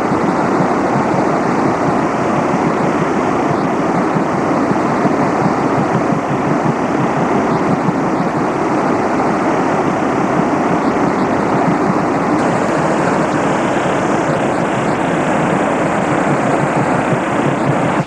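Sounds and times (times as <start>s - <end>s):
water rushing from dam: 0.0s - 10.8s, 11.4s - 18.0s.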